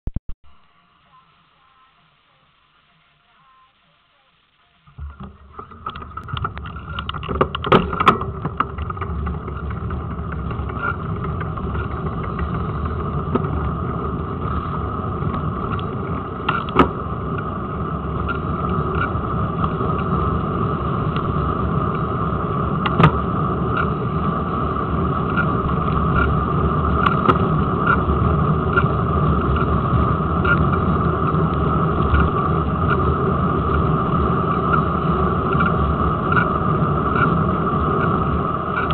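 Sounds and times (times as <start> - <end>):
steady hum: 0.1 - 38.9
wheel knocking over bumps: 4.9 - 34.0
bicycle tyres rumbling on tarmac: 4.9 - 38.9.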